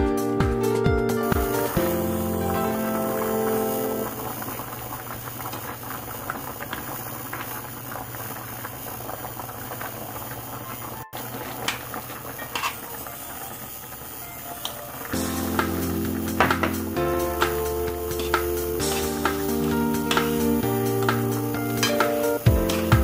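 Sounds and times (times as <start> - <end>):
background music: 0.0 - 4.2, 14.3 - 23.0
water boiling and bubbling: 1.2 - 23.0.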